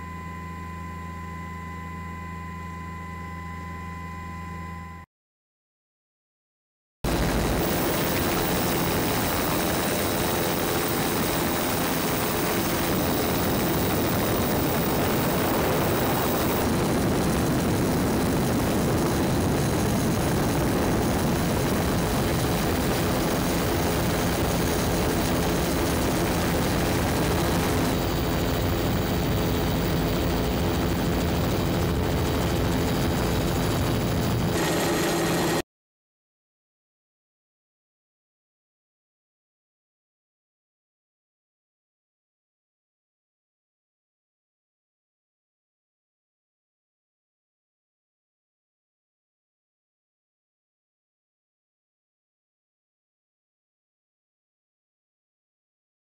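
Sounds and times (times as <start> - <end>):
aircraft engine drone: 7.1 - 35.6.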